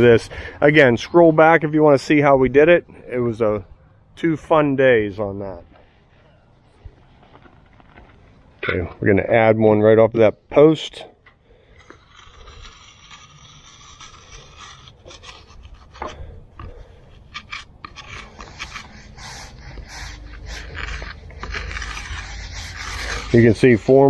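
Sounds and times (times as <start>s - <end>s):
float scraping fresh concrete: 11.4s - 24.0s.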